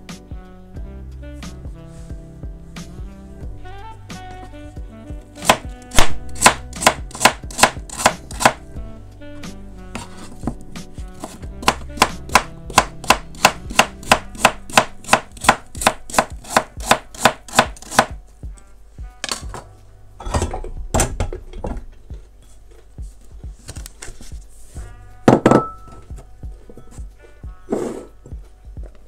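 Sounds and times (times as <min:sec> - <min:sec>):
background music: 0:00.0 - 0:29.0
knife chopping on cutting board: 0:05.4 - 0:08.6, 0:10.0 - 0:18.2.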